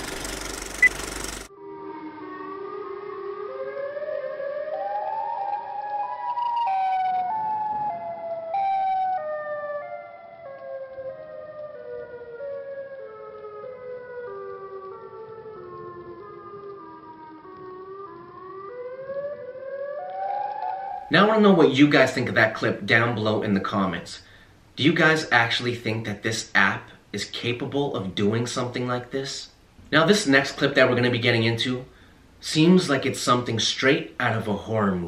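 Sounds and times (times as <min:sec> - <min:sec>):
slow music of held notes: 0:01.5 - 0:21.1.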